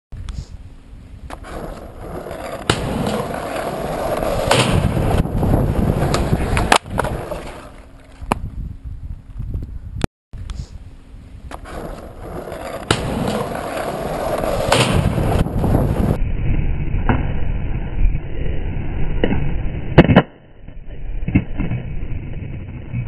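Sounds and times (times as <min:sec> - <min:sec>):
skateboard wheels rolling on asphalt: 0:00.6 - 0:10.0, 0:11.1 - 0:16.2, 0:20.9 - 0:23.0.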